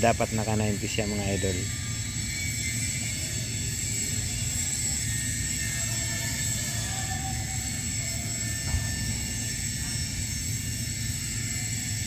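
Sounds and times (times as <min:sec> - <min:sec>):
machinery humming: 0:00.0 - 0:12.0.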